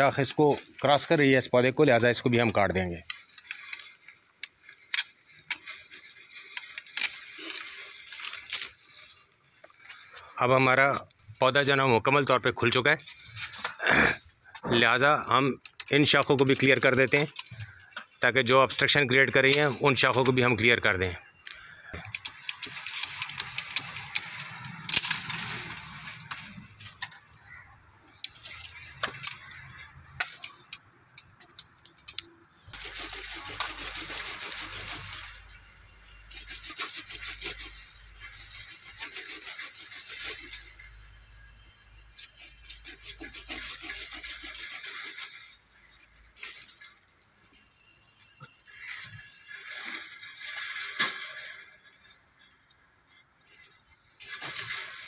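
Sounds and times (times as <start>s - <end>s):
leafy branches rustling: 0.0s - 13.9s, 22.1s - 30.0s, 32.7s - 55.0s
branches cracking and snapping: 3.1s - 9.2s, 21.6s - 27.6s.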